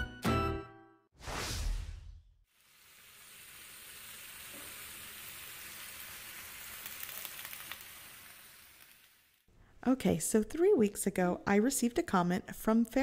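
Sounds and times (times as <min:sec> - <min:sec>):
meat sizzling on griddle: 0:02.5 - 0:09.5
faint crackles: 0:02.6 - 0:09.5.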